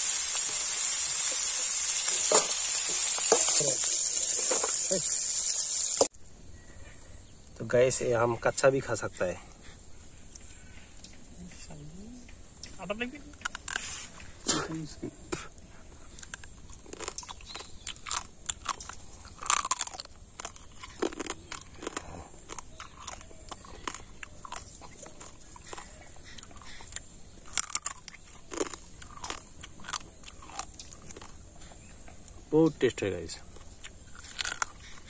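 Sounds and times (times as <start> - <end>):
person chewing crunchy crab: 13.4 - 14.3, 16.1 - 31.9, 33.5 - 35.0.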